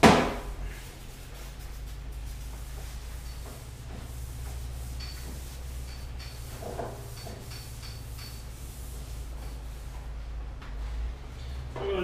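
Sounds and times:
cloth wiping metal panel: 0:00.6 - 0:10.1.

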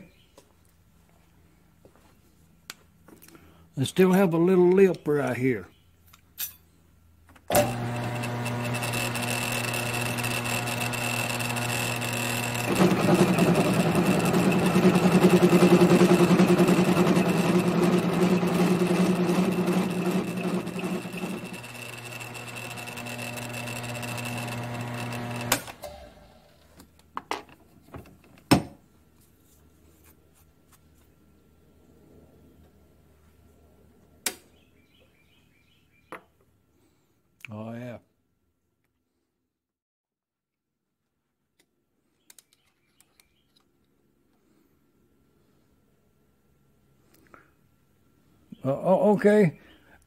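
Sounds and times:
milling machine motor humming: 0:07.5 - 0:26.1
end mill cutting steel: 0:07.5 - 0:26.2.

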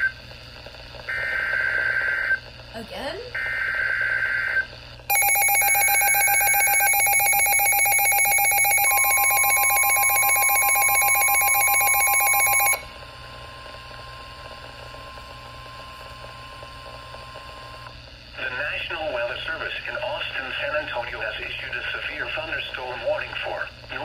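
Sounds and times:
rapidly pulsing electronic alarm: 0:01.1 - 0:02.4, 0:03.3 - 0:13.0.

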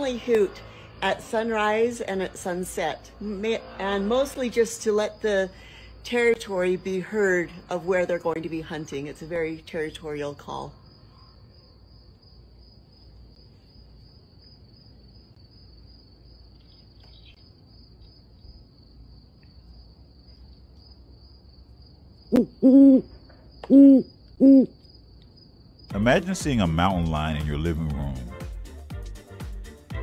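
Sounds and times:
faint background hum: 0:00.0 - 0:26.2
owl hooting: 0:22.3 - 0:24.9.

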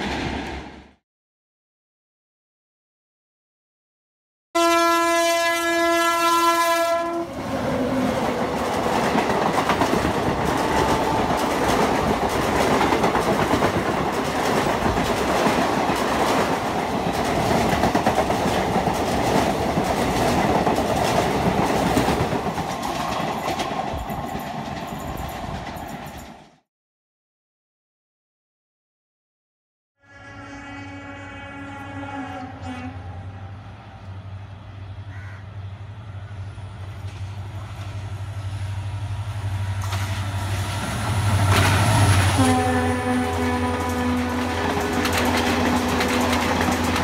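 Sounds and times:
train horn: 0:04.6 - 0:07.4, 0:10.5 - 0:11.6, 0:30.0 - 0:33.6, 0:42.0 - 0:47.0
train wheels clattering over rail joints: 0:08.2 - 0:26.5, 0:44.5 - 0:47.0.

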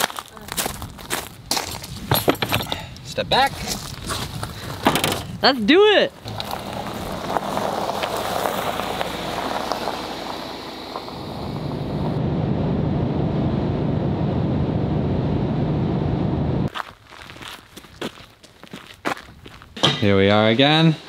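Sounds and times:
car tyres crunching gravel: 0:03.4 - 0:05.5, 0:06.2 - 0:12.2, 0:16.7 - 0:19.8
car engine and road drone: 0:06.2 - 0:16.7.

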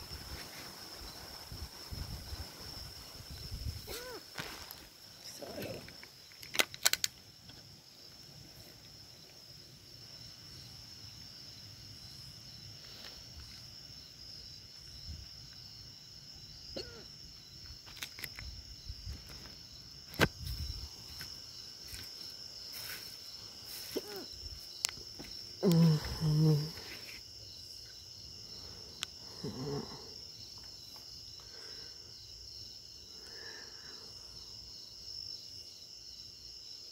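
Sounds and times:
crickets trilling: 0:00.0 - 0:36.9.

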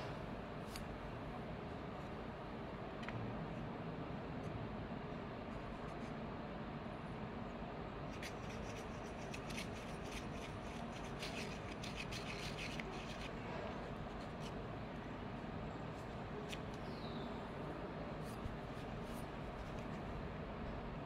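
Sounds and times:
low background hum: 0:00.0 - 0:21.0
palette knife scraping paint: 0:08.1 - 0:14.6.

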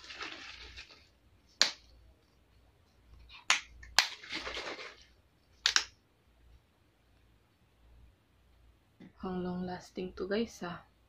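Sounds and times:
liquid splashing: 0:00.0 - 0:01.2, 0:04.0 - 0:05.8.

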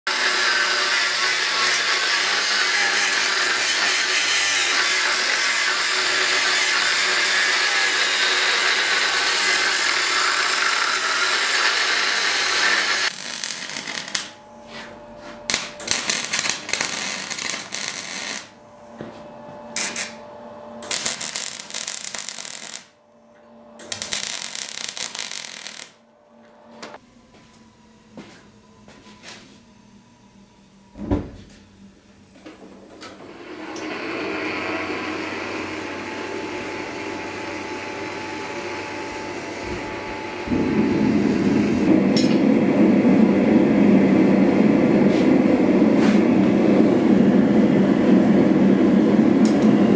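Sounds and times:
angle grinder grinding steel: 0:00.1 - 0:14.3
electric arc welding: 0:00.1 - 0:14.4, 0:15.5 - 0:18.6, 0:19.8 - 0:20.2, 0:20.8 - 0:23.0, 0:23.8 - 0:26.0.

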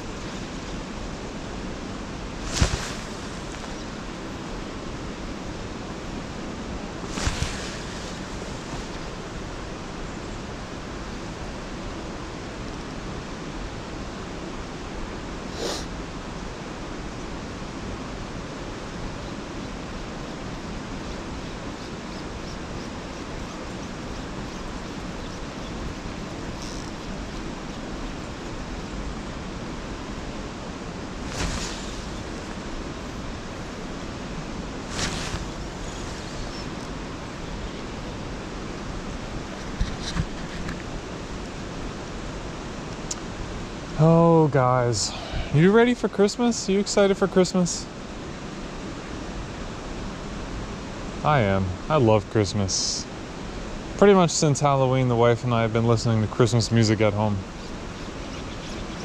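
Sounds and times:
brief whooshes: 0:07.1 - 0:08.9, 0:31.2 - 0:32.6, 0:34.9 - 0:36.8.

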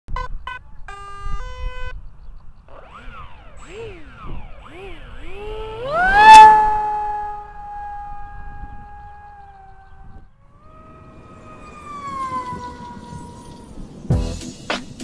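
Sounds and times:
electric motor revving and whining: 0:02.7 - 0:14.0.

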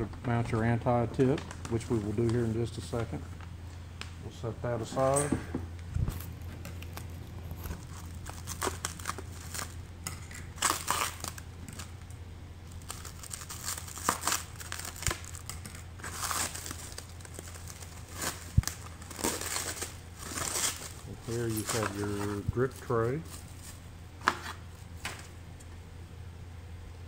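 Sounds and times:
plastic wrapping crinkling: 0:06.0 - 0:12.0, 0:12.6 - 0:25.3.

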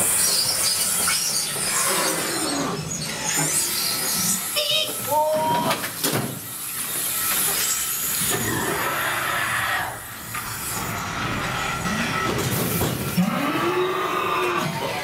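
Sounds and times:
ride car rumbling along track: 0:09.9 - 0:15.0.

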